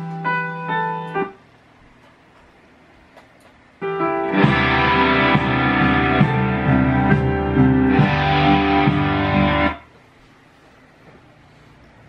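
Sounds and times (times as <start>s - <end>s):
loud guitar music: 3.8s - 9.8s.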